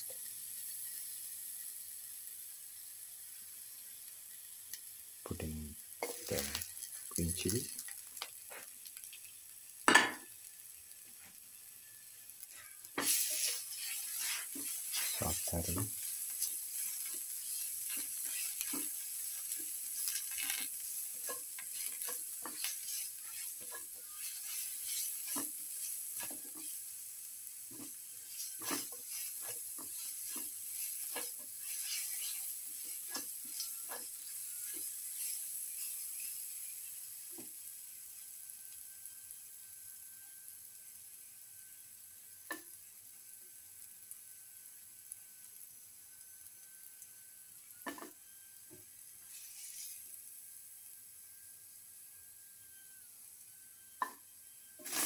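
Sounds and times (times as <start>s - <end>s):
food sizzling in hot oil: 0.0s - 55.0s
spatula scraping and tapping pan: 6.0s - 6.6s, 12.4s - 26.9s, 27.7s - 37.6s, 47.8s - 50.1s.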